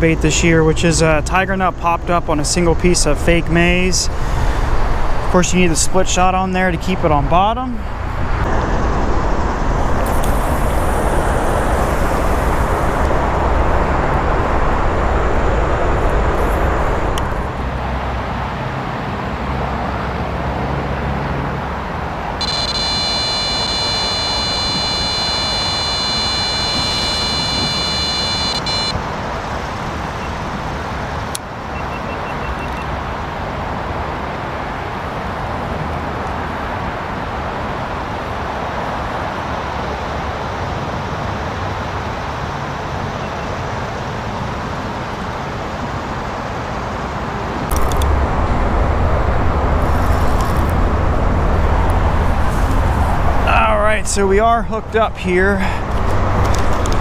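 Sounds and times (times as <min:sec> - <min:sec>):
road traffic rumble: 0:00.0 - 0:57.0
high-pitched whine: 0:08.3 - 0:17.5, 0:22.4 - 0:29.0
sharp click: 0:47.7 - 0:48.1.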